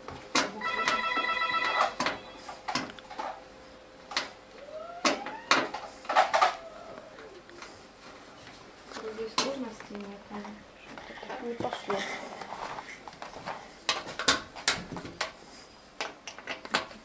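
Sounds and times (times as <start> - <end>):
pulsing electronic ringing tone: 0.6 - 2.4.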